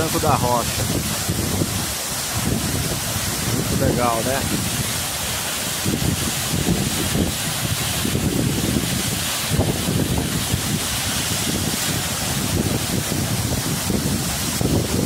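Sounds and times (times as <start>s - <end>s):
waterfall rushing onto rocks: 0.0s - 15.0s
wind buffeting microphone: 0.0s - 15.0s.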